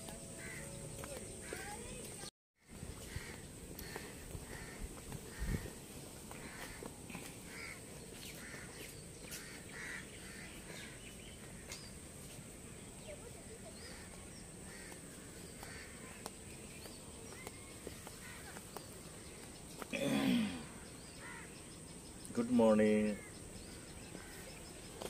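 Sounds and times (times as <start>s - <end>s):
small birds chirping: 0.0s - 25.0s
steady outdoor background hiss: 0.0s - 25.0s
crows cawing: 0.4s - 1.9s, 2.6s - 11.8s, 13.8s - 16.4s, 17.6s - 19.3s, 20.6s - 21.7s, 23.0s - 24.7s.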